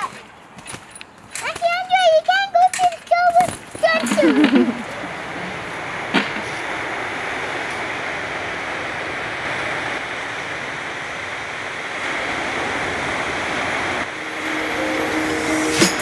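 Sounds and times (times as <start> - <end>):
ocean surf on beach: 3.6 - 16.0.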